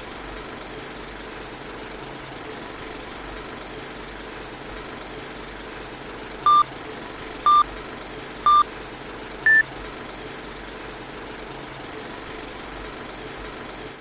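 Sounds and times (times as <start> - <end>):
countdown beeps: 6.5 - 6.7, 7.5 - 7.7, 8.5 - 8.7, 9.5 - 9.7.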